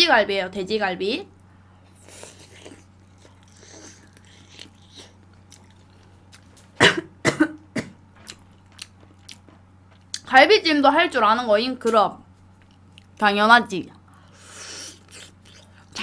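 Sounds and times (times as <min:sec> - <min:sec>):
woman chewing: 0:01.9 - 0:06.7, 0:08.2 - 0:10.2, 0:14.4 - 0:16.0
woman coughing: 0:06.8 - 0:08.0.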